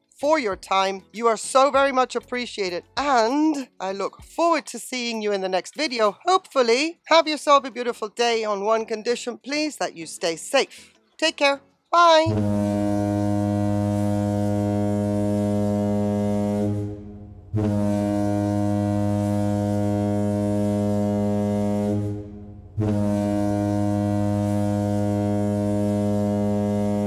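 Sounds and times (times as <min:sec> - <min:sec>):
ship's horn blasts: 0:12.2 - 0:27.0.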